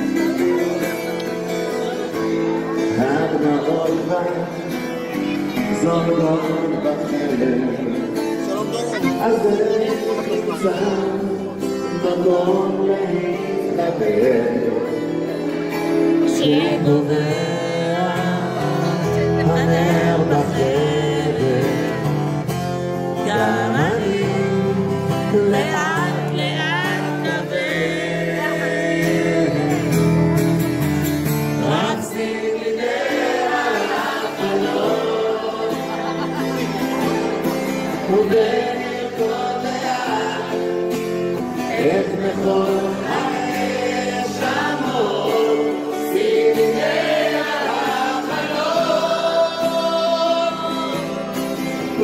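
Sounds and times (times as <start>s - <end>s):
audience singing along: 0.0s - 22.4s, 23.1s - 52.0s
man singing live pop song: 0.0s - 36.4s, 37.0s - 52.0s
acoustic guitar and band: 0.0s - 52.0s.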